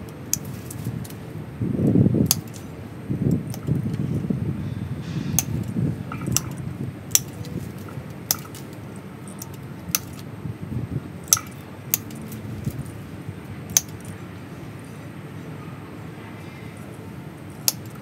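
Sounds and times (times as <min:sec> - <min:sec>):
pruning shears snipping: 0:00.0 - 0:01.3, 0:02.2 - 0:04.0, 0:05.0 - 0:10.3, 0:11.3 - 0:13.0, 0:13.7 - 0:14.2, 0:17.6 - 0:18.0
leaves rustling: 0:00.0 - 0:15.0.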